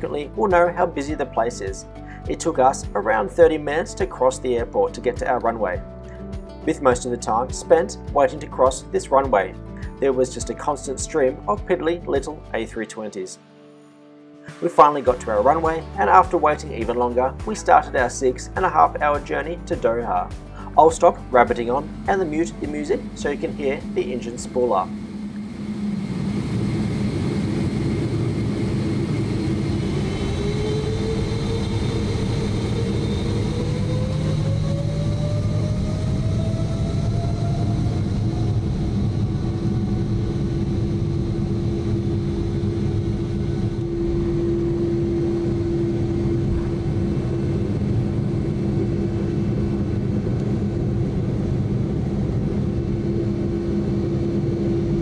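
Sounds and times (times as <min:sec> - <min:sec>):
jet engine spooling up: 0:20.0 - 0:55.0.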